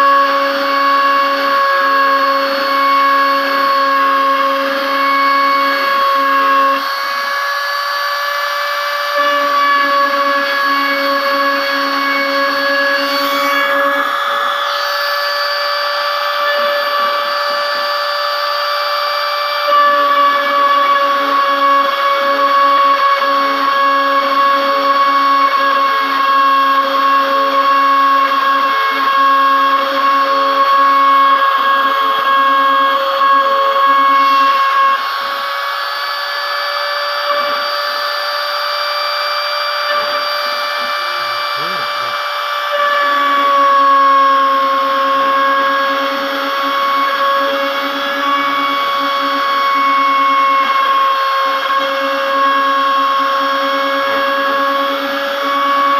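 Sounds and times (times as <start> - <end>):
router spindle whine: 0.0 - 55.9
lower broken tone: 2.2 - 20.4, 33.0 - 43.6
bit cutting metal hiss: 39.9 - 42.4.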